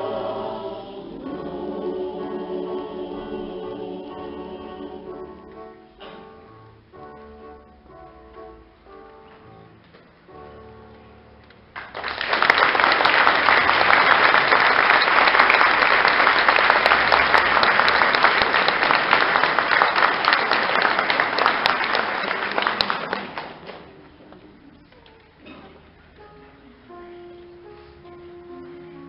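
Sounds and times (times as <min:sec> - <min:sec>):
faint music: 0:00.0 - 0:11.9, 0:22.6 - 0:29.0
audience applause: 0:11.8 - 0:24.0.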